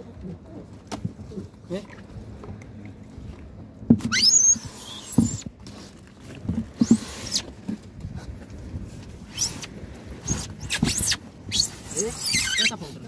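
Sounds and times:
knocks and thumps of fish boxes: 3.8s - 4.2s
short rising squeaks: 4.0s - 5.5s, 6.8s - 7.5s, 9.3s - 12.8s.

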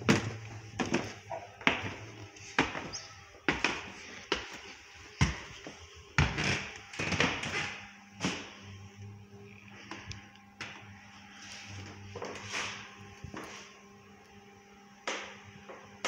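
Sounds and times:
footsteps on wooden floor: 0.0s - 8.6s.

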